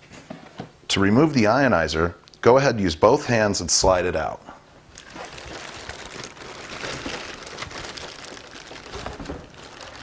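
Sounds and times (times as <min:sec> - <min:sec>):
plastic packaging crinkling: 0:04.9 - 0:10.0.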